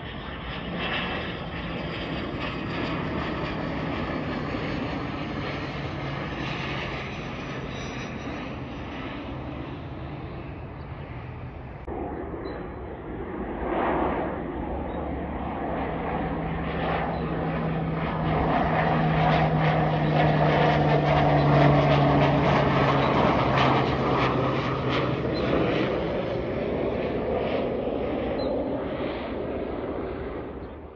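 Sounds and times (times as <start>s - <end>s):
propeller airplane flying overhead: 0.0s - 30.9s.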